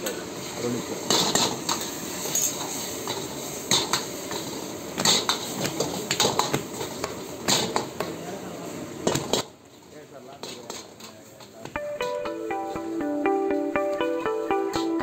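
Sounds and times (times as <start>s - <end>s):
sizzle of frying: 0.0s - 15.0s
metal ladle scraping a wok: 1.1s - 4.4s.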